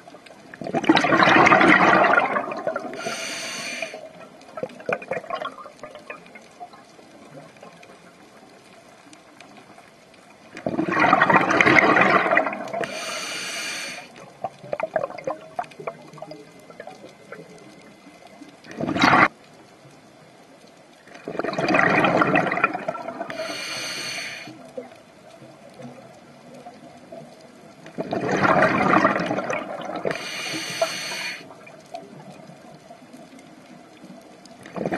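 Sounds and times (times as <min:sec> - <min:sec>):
exhaled bubbles gurgling: 0:00.0 - 0:19.5, 0:21.0 - 0:34.9
faint crackling and clicks: 0:00.0 - 0:34.9
hissing regulator inhale: 0:02.9 - 0:04.1, 0:12.8 - 0:14.2, 0:23.3 - 0:24.6, 0:30.1 - 0:31.5.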